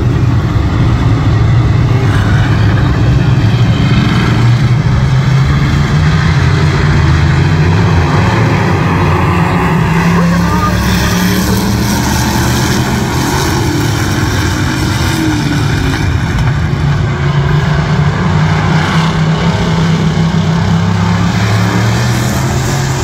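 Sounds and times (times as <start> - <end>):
stock car engines racing: 0.0 - 23.0.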